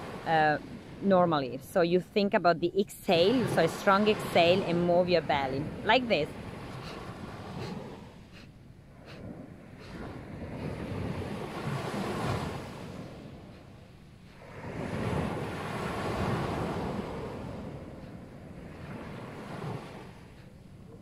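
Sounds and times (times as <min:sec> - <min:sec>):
wind buffeting microphone: 0:00.0 - 0:21.0
surf washing onto beach: 0:09.8 - 0:13.4, 0:14.4 - 0:18.0.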